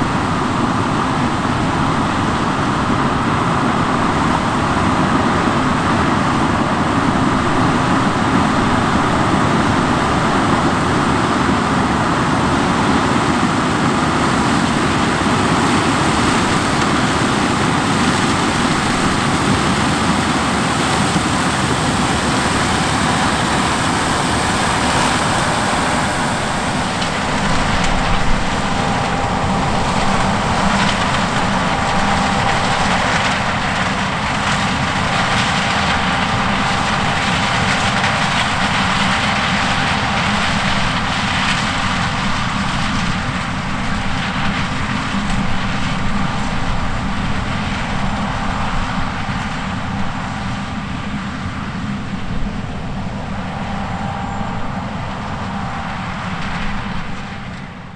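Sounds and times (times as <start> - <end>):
combine harvester running: 0.0 - 57.9.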